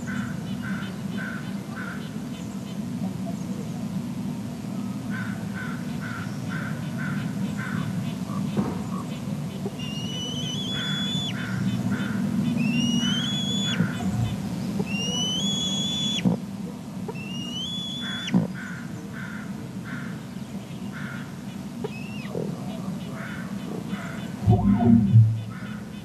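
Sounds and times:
faint short bird calls: 5.2 - 16.4, 17.1 - 20.1, 20.9 - 26.0
young eagle whistled squeals: 9.7 - 11.5, 12.6 - 16.3, 17.1 - 18.4, 21.9 - 22.3
steady low rumble: 13.9 - 14.8, 24.4 - 26.0.

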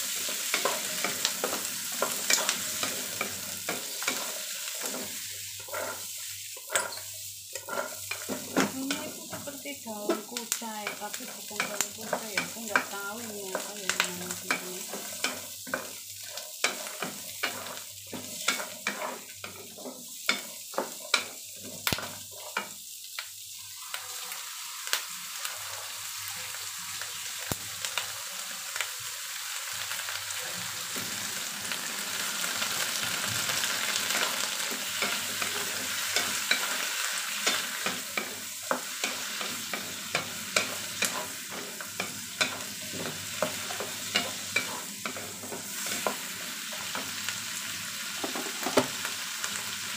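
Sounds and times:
vegetables sizzling in hot oil: 0.0 - 49.9
spatula tapping and scraping pan: 0.1 - 6.0, 6.6 - 22.7, 33.8 - 47.2.

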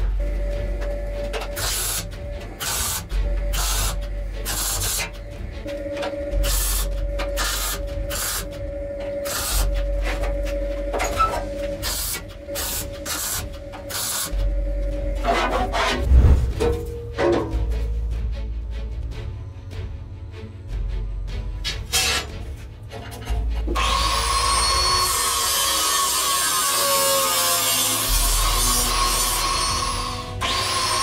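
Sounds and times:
welding arc crackling bursts: 1.6 - 5.3, 6.3 - 10.2, 11.1 - 14.5.

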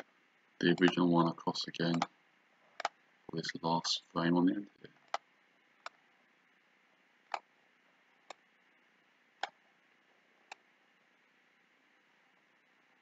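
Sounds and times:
faint room hiss: 0.0 - 13.0
computer mouse clicking: 1.9 - 2.1, 2.8 - 3.0.

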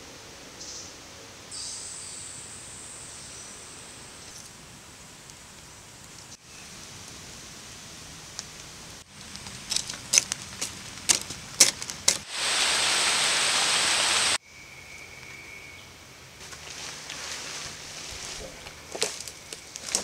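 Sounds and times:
campfire crackling and popping: 8.0 - 14.4
loud even hiss: 12.1 - 14.4.

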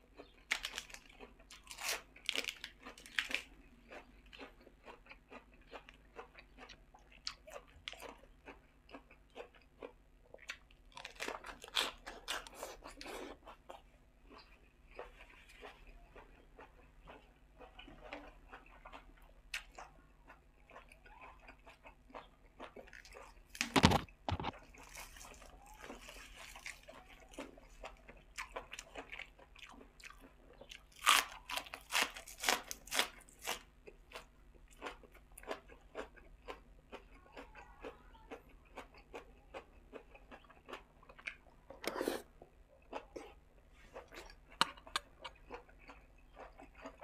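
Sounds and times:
wet chewing: 0.0 - 47.0
crunchy bites: 0.1 - 20.8, 21.6 - 37.1.

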